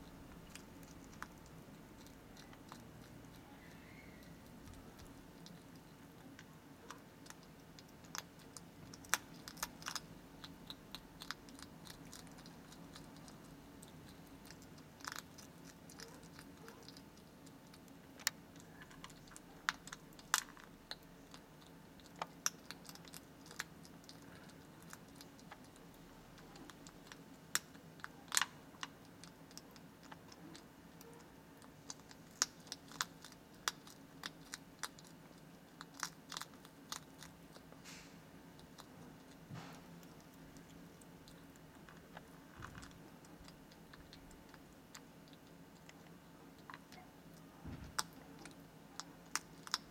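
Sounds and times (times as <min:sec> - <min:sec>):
hedgehog crunching kibble: 0:00.0 - 0:49.9.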